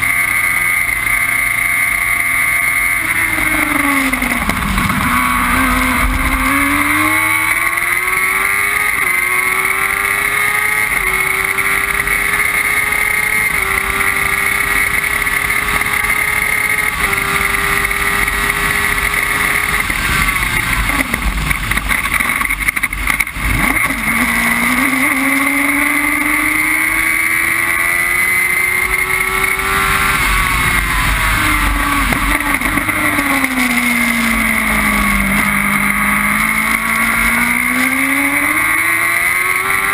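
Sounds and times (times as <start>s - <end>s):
race car engine accelerating: 0.0s - 39.9s.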